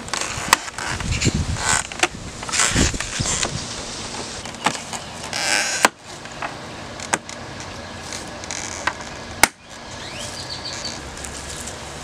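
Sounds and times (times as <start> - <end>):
plastic scraping: 0.0 - 9.5.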